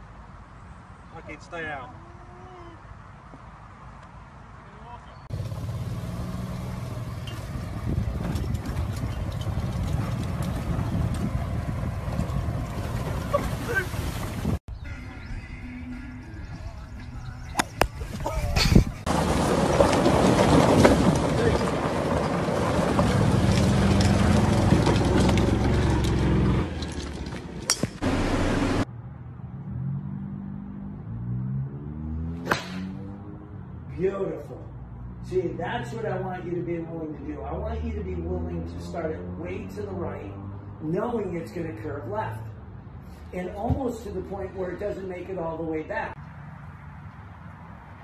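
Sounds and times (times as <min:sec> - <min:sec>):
golf cart motor humming: 0:05.3 - 0:13.3, 0:28.0 - 0:28.8
cart rumbling and rattling: 0:05.3 - 0:14.6, 0:16.5 - 0:28.9
tyres crackling on gravel: 0:05.3 - 0:15.2, 0:16.4 - 0:28.8
sharp knock: 0:32.4 - 0:32.9.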